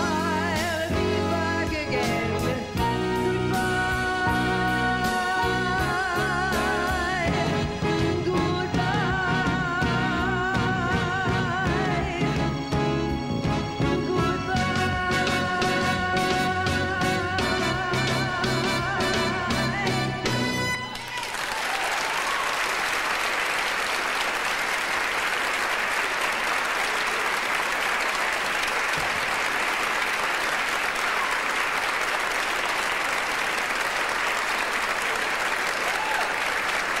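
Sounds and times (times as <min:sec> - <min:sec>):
audience applauding: 0:20.8 - 0:37.0.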